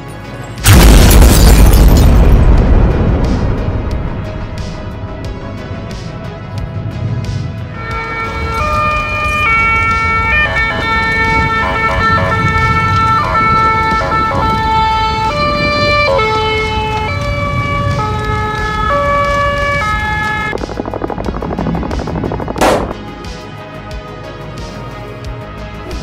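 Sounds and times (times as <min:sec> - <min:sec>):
steady low rumble: 0:00.7 - 0:24.0
siren-like synthesizer lead: 0:07.8 - 0:22.9.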